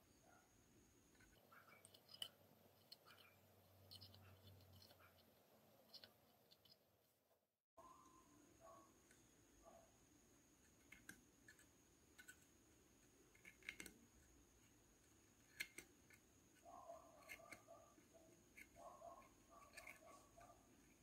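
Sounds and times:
metal tool clicking on wooden nails: 1.2s - 5.0s, 13.3s - 14.0s, 15.4s - 20.5s.

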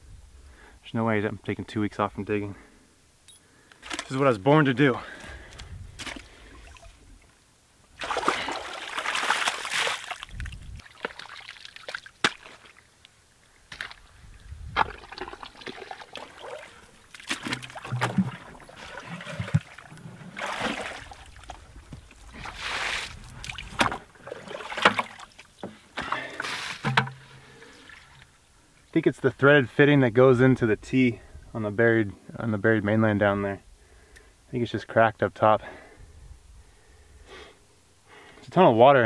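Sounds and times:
water sloshing in bucket: 3.8s - 4.2s, 6.0s - 7.0s, 8.0s - 12.8s, 14.7s - 28.4s
sharp knocks: 26.8s - 27.3s.

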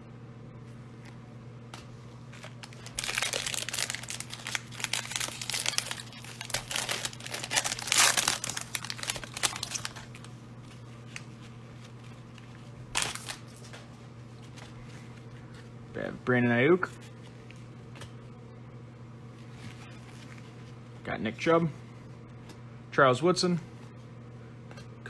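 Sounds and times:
wrapper rustling: 2.2s - 13.8s
card pack wrapper crinkling and tearing: 2.3s - 10.4s, 12.9s - 13.8s.

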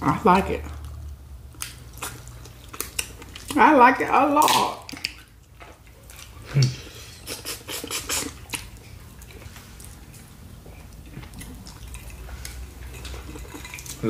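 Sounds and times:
chewing: 0.6s - 3.6s, 4.4s - 14.0s
lip smacks: 4.8s - 14.0s.

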